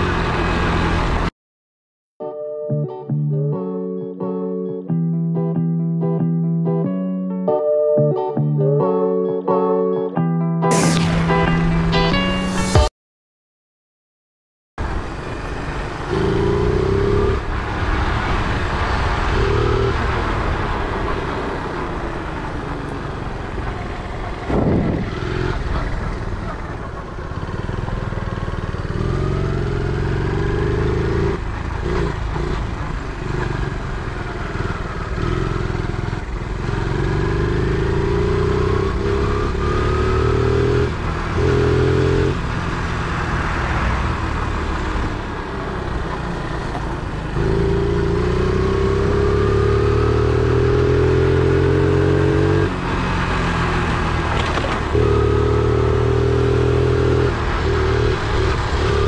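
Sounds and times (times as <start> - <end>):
mini bike engine revving: 34.6 - 59.0.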